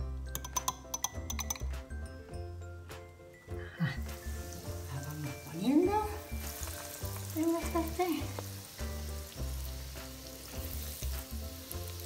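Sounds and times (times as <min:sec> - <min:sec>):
background music: 0:00.0 - 0:12.0
food sizzling in oil: 0:04.0 - 0:12.0.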